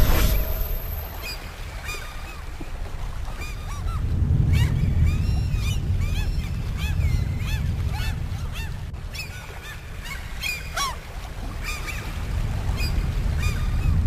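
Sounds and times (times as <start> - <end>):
steady low rumble: 0.0 - 14.0
waterbirds honking: 0.0 - 14.0.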